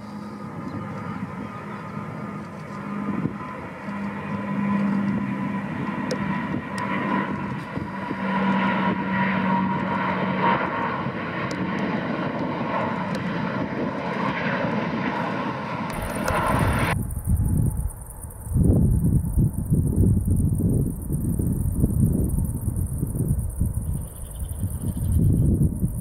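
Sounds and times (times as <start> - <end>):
jet engine roar: 0.0 - 26.0
low droning tone: 15.9 - 26.0.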